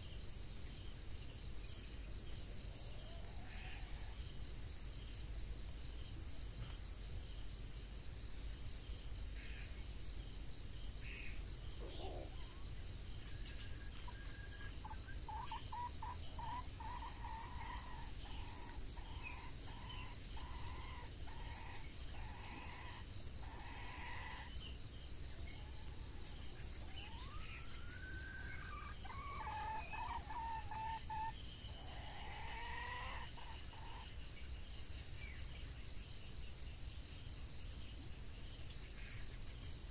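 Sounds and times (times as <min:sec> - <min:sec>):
insects buzzing: 0:00.0 - 0:39.9
junglefowl calling: 0:11.8 - 0:12.6, 0:13.6 - 0:24.6, 0:26.8 - 0:34.1.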